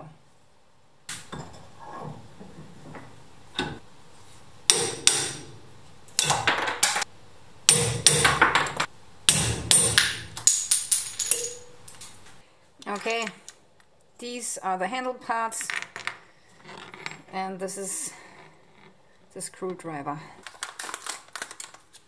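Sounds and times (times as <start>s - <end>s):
hammer striking a chisel: 4.7s - 5.5s, 7.7s - 11.7s.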